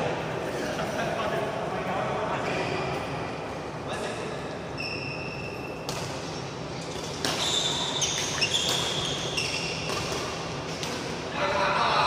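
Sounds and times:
shoes squeaking on court: 0:04.7 - 0:10.9
rackets hitting shuttlecock: 0:05.8 - 0:11.2.

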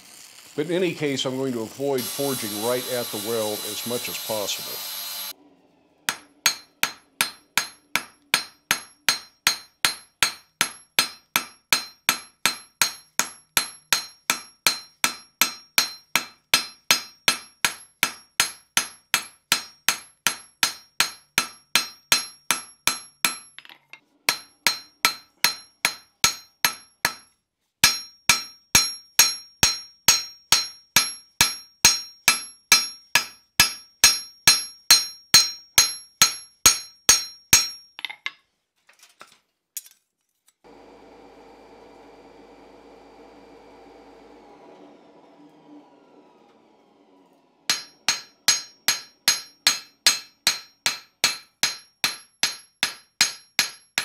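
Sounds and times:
hammer ringing on anvil: 0:06.1 - 0:23.6, 0:24.3 - 0:38.0, 0:47.7 - 0:54.0.

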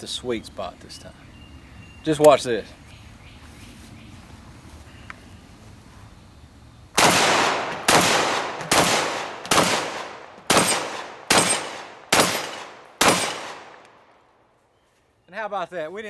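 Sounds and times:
shotgun shots: 0:07.0 - 0:13.8.

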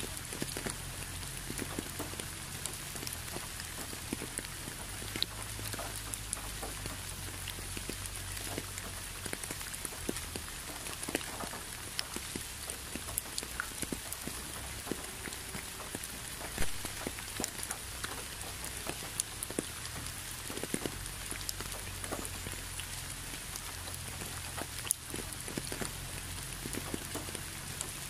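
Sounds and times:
rain hissing: 0:00.0 - 0:28.0
raindrops tapping: 0:00.0 - 0:28.0.

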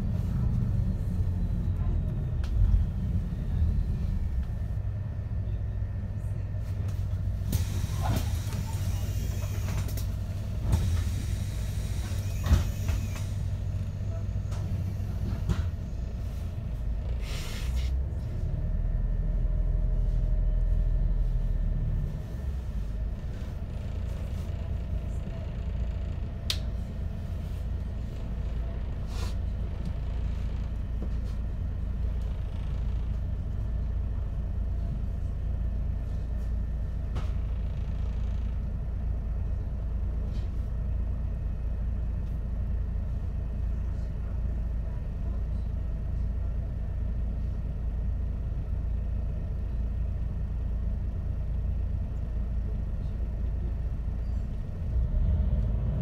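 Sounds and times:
bus engine running: 0:00.0 - 0:56.0
air brake hiss: 0:10.7 - 0:13.5, 0:17.2 - 0:17.9.

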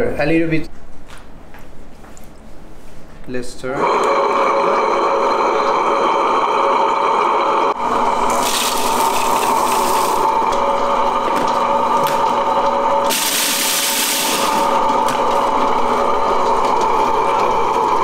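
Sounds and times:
grinder motor running: 0:03.8 - 0:18.0
cacao nibs pouring into bowl: 0:08.2 - 0:17.6.

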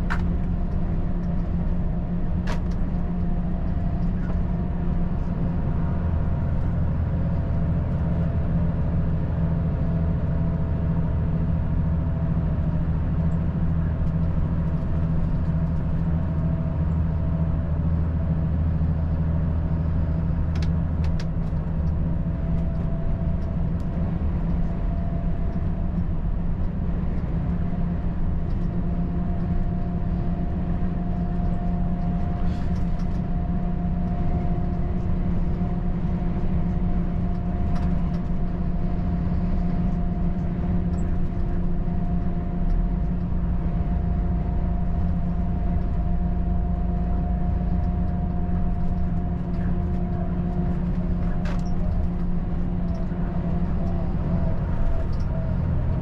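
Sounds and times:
road noise: 0:00.0 - 0:56.0
truck diesel engine droning: 0:00.0 - 0:56.0.

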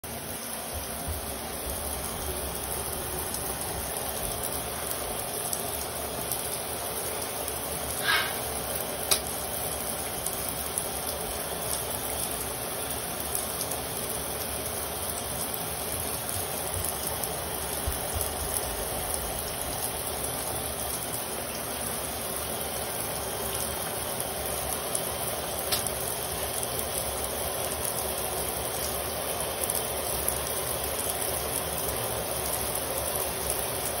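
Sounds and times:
shower spray running: 0:00.1 - 0:26.6.

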